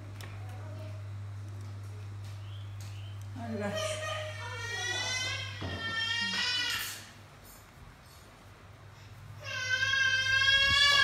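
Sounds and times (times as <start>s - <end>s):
baby monkey high-pitched cries: 3.6s - 7.1s, 9.4s - 11.0s.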